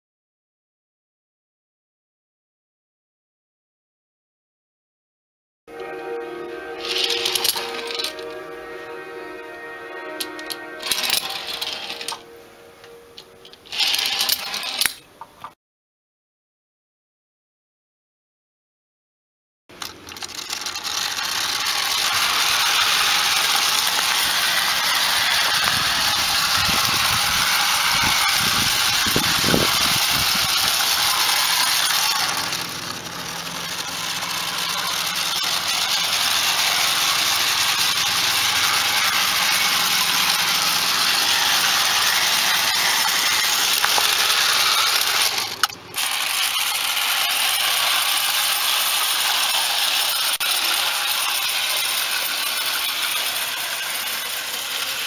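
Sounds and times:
model locomotive whirring rattle: 0:06.8 - 0:08.4, 0:10.1 - 0:12.2, 0:13.2 - 0:15.1, 0:19.7 - 0:55.0.

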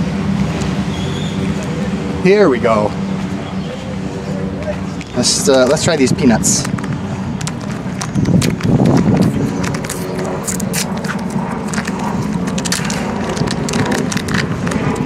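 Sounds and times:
low background rumble: 0:06.6 - 0:15.0
foil packet crinkling: 0:07.4 - 0:15.0.

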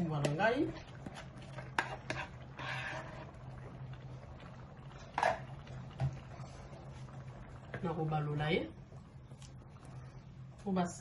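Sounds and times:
thick sauce pouring and scraping: 0:00.8 - 0:07.2
low hum: 0:02.4 - 0:11.0.

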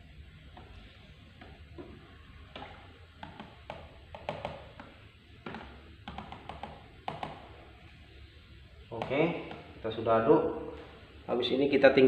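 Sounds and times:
spoon knocking against plastic tub: 0:02.5 - 0:07.6, 0:09.0 - 0:09.8.

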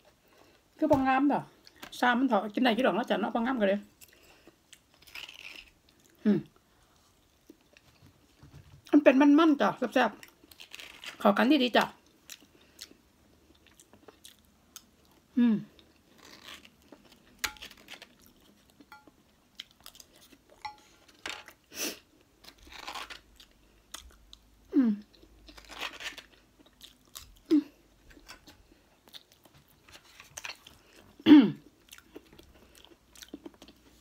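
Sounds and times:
person chewing: 0:12.1 - 0:20.8, 0:25.0 - 0:34.0.

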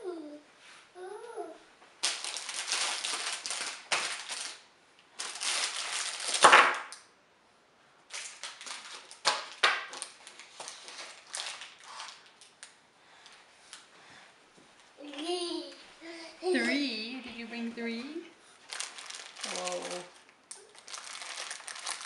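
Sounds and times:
candy wrappers crinkling: 0:02.0 - 0:07.1, 0:08.1 - 0:13.8, 0:18.6 - 0:22.0.

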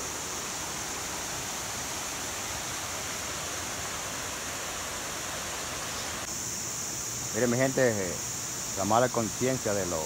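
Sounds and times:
river water rushing over cascades: 0:00.0 - 0:10.0.

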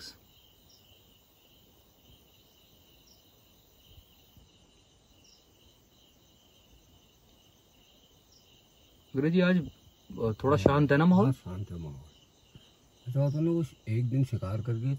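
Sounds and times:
crickets chirring: 0:00.0 - 0:14.9.

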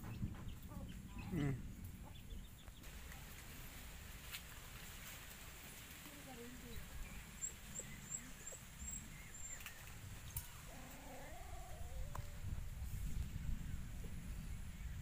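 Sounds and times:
bird chirping: 0:00.0 - 0:02.9, 0:06.6 - 0:11.1
low rumble on microphone: 0:06.3 - 0:15.0.

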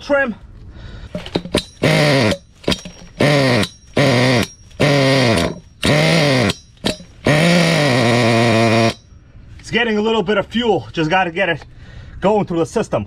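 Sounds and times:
model engine cranking whir: 0:01.3 - 0:09.0.

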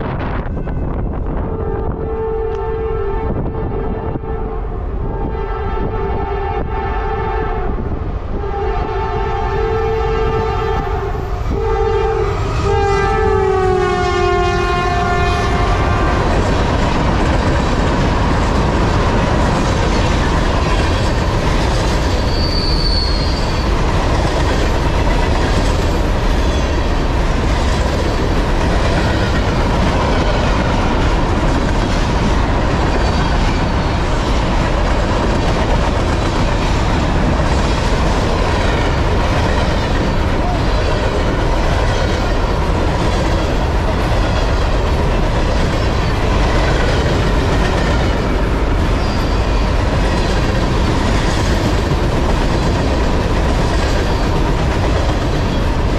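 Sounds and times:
train cars rumbling and clattering: 0:00.0 - 0:55.9
locomotive air horn blasts: 0:00.8 - 0:16.2
high wheel squeal: 0:22.0 - 0:23.8, 0:48.9 - 0:49.8.

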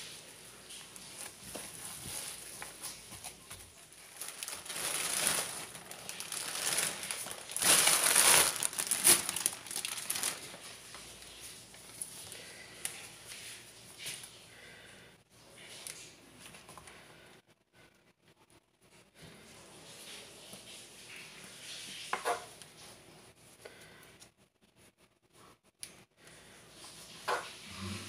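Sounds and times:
plastic bag crinkling: 0:00.7 - 0:12.3.

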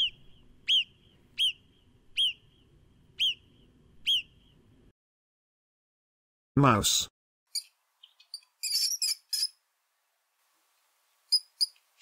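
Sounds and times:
marmot whistled chirps: 0:00.0 - 0:01.6, 0:02.2 - 0:02.5, 0:03.2 - 0:04.4, 0:11.3 - 0:11.8.

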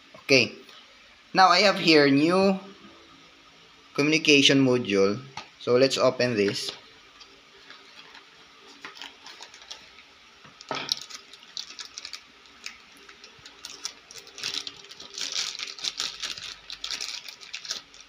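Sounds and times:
plastic bag crinkling: 0:07.5 - 0:18.0.

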